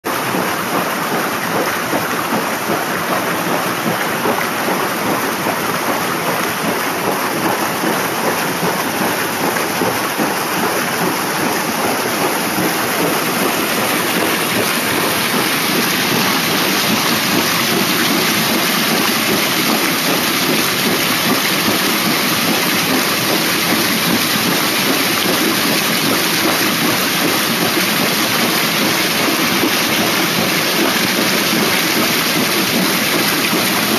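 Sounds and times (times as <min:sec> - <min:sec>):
floodwater rushing down a stream: 0:00.1 - 0:33.9.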